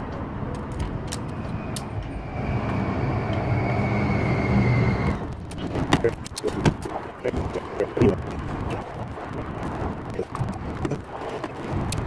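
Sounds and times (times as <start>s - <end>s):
passing vehicle rumble: 0.0s - 12.0s
faint high whine: 1.2s - 5.3s.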